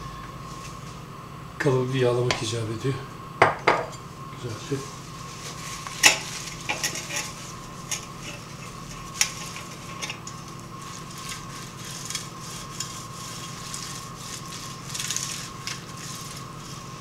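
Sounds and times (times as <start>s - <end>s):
faint steady hum: 0.0s - 17.0s
paper rubbing inside a tin: 4.9s - 17.0s.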